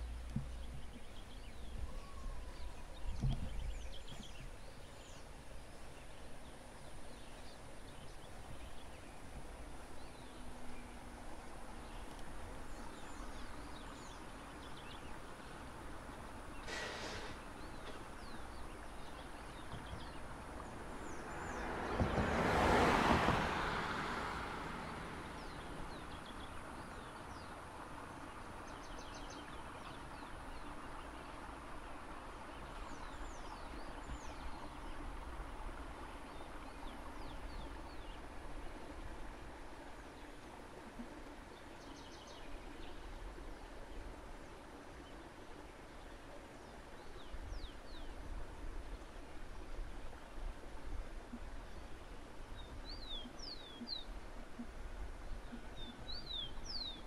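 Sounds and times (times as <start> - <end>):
birds chirping: 0.0 - 22.5, 25.2 - 27.6, 51.6 - 54.7, 55.3 - 57.0
vehicle passing by: 20.5 - 28.3.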